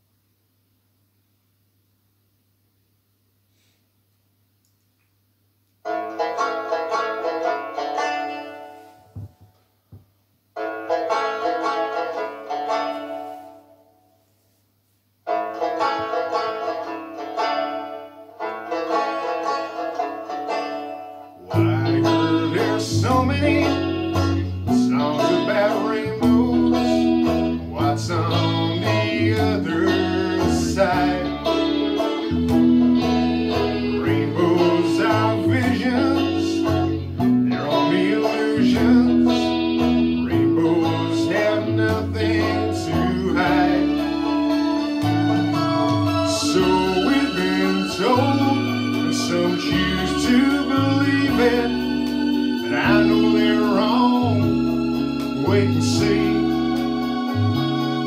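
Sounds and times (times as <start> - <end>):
plucked banjo: 5.8 - 9.3, 10.6 - 13.8, 15.2 - 58.0
bass and drums: 21.6 - 37.9, 38.6 - 58.0.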